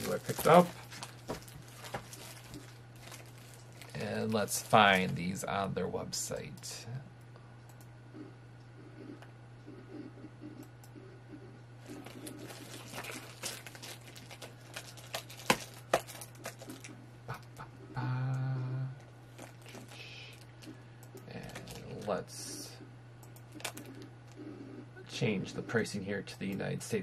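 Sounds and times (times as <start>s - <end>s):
plastic wrapping crinkling: 0.0s - 5.4s, 11.8s - 17.0s, 19.3s - 20.7s, 23.6s - 24.0s
man humming: 17.3s - 19.1s.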